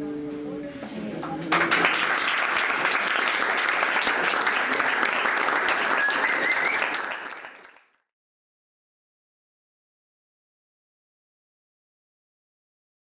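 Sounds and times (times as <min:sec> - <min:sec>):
audience applauding: 0:01.2 - 0:08.0
short whistle: 0:05.8 - 0:07.1.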